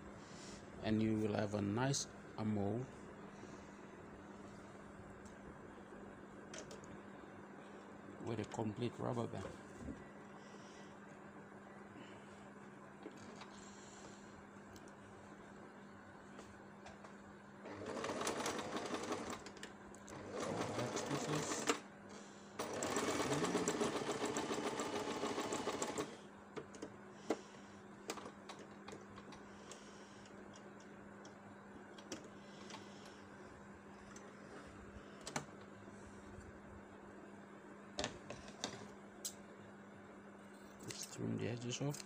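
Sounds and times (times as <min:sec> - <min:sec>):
sewing machine stitching: 0:17.7 - 0:21.8, 0:22.6 - 0:26.2.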